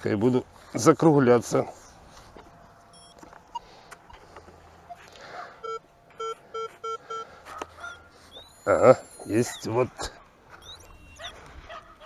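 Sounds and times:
metal detector beeping: 0:02.9 - 0:05.0, 0:05.6 - 0:11.5.

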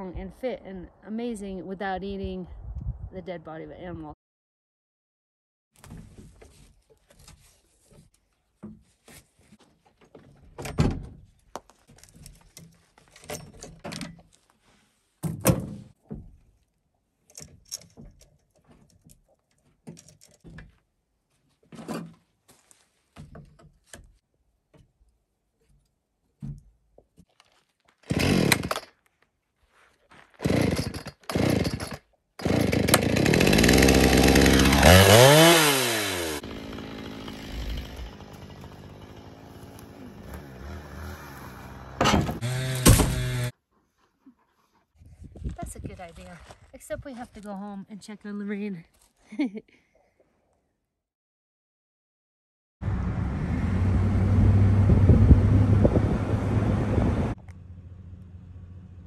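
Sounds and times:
chainsaw revving and idling: 0:28.1 - 0:28.8, 0:30.4 - 0:43.5
chainsaw pull-start bursts: 0:28.1 - 0:28.9, 0:30.4 - 0:43.5.

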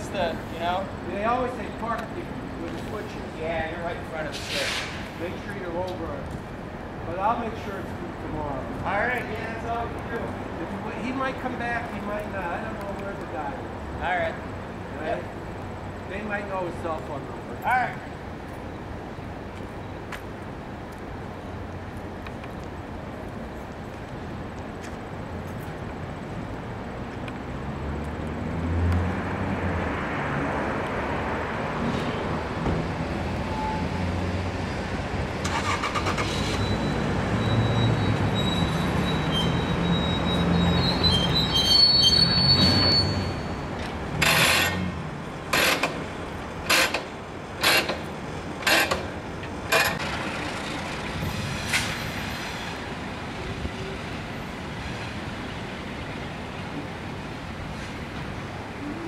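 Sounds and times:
thin high squeal: 0:37.6 - 0:43.7.

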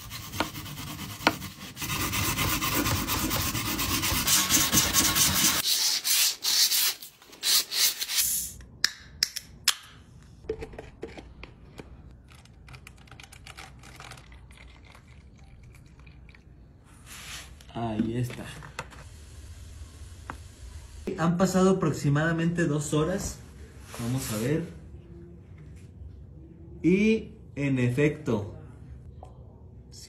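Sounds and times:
sanding rubbing strokes on can: 0:00.0 - 0:08.2.

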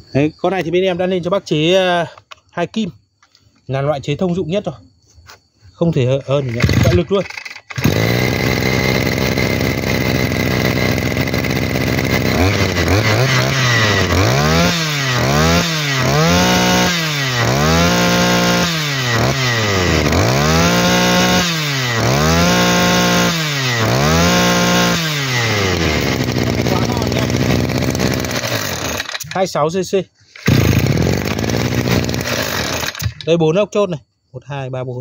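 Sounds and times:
brush cutter engine revving: 0:06.2 - 0:29.6, 0:30.4 - 0:33.4.

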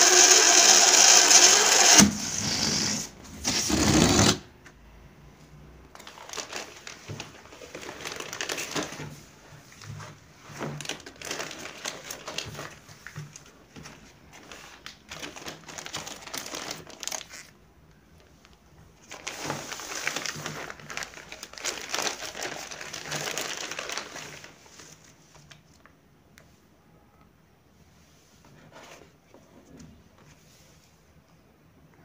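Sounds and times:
latex balloons rustling: 0:00.0 - 0:04.5, 0:06.0 - 0:17.6, 0:18.9 - 0:25.2
plastic packet crinkling: 0:05.9 - 0:09.1, 0:10.5 - 0:12.9, 0:14.4 - 0:17.6, 0:19.0 - 0:25.9.

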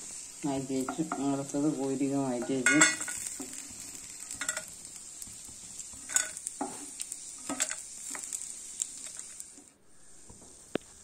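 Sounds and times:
shrimp sizzling in oil: 0:00.0 - 0:11.0
spatula clinking and scraping: 0:02.3 - 0:09.4.

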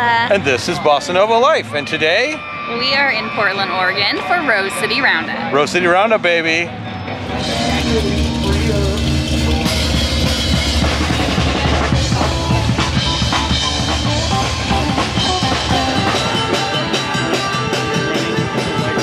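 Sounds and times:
sustained instruments: 0:00.4 - 0:19.0
drum kit driving beat: 0:07.2 - 0:19.0.

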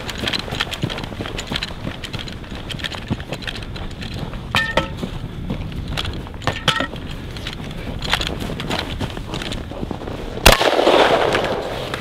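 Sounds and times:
gear rattling and jingling: 0:00.0 - 0:10.2
running footsteps crunching snow: 0:00.0 - 0:12.0
short metallic ring: 0:04.5 - 0:05.0.

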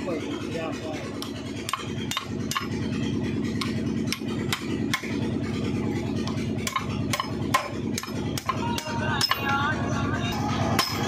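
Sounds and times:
low engine drone: 0:00.0 - 0:11.0
hammer striking metal: 0:01.2 - 0:02.8, 0:03.6 - 0:05.2, 0:06.6 - 0:11.0.

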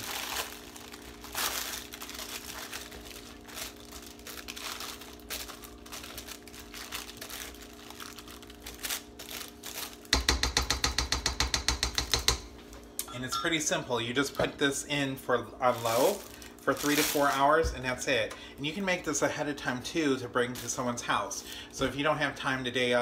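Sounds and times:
plastic liner crinkling: 0:00.0 - 0:10.2, 0:15.7 - 0:17.7.

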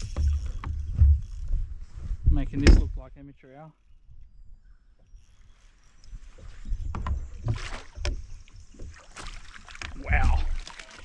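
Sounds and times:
fish thrashing and splashing: 0:07.4 - 0:11.0.

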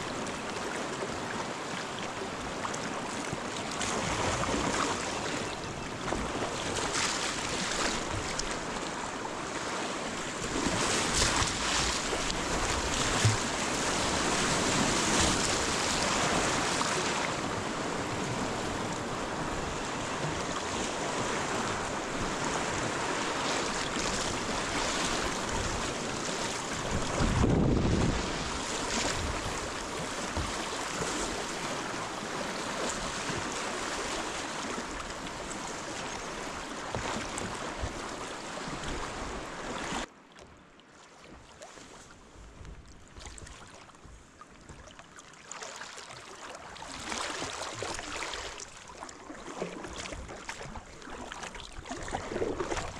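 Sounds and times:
river water rushing and splashing: 0:00.0 - 0:40.3, 0:44.9 - 0:52.9
wind noise on microphone: 0:23.9 - 0:32.0.

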